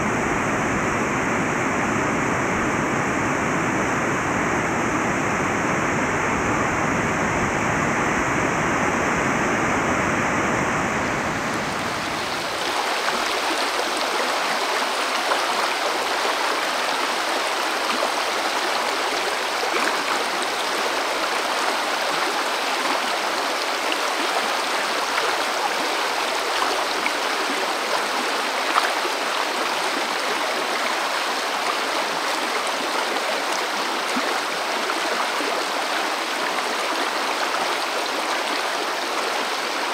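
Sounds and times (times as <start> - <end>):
river water rushing over rocks: 10.7 - 39.9.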